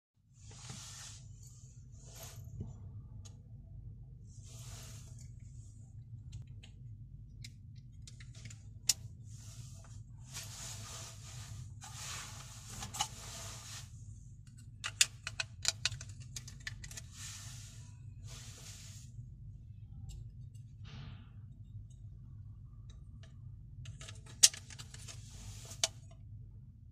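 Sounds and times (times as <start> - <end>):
steady low hum: 0.4 - 26.9
rustling handling noise: 8.1 - 19.2, 23.9 - 26.2.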